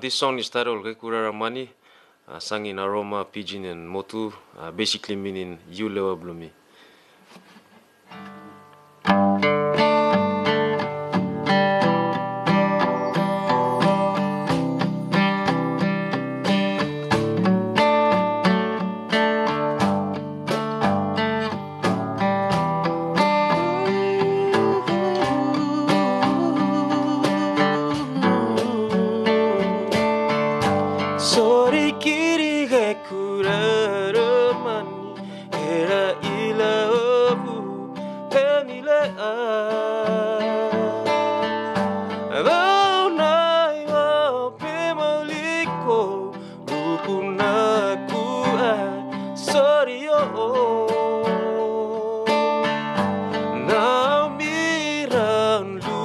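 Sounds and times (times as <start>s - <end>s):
acoustic guitar strumming chords: 6.5s - 56.0s
cajon tapping a beat: 9.1s - 56.0s
man singing: 23.2s - 56.0s.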